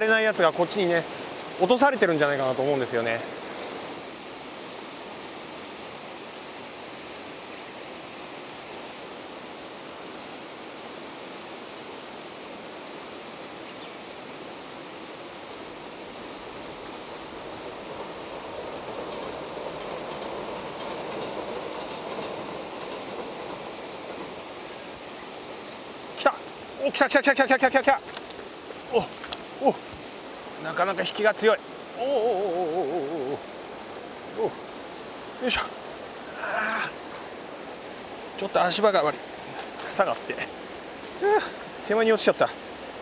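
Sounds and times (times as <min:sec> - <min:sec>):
river rapids rushing: 0:00.0 - 0:43.0
train crossing a bridge: 0:14.4 - 0:43.0.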